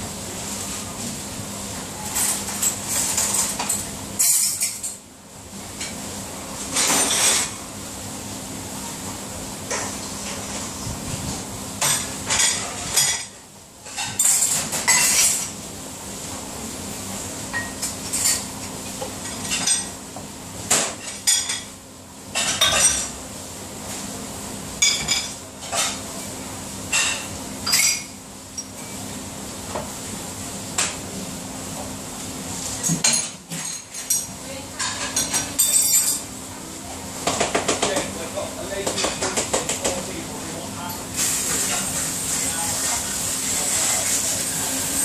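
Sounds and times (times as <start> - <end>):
dishes clattering in dishwasher rack: 6.7 - 7.6, 13.9 - 15.5, 22.3 - 23.2, 32.8 - 36.2.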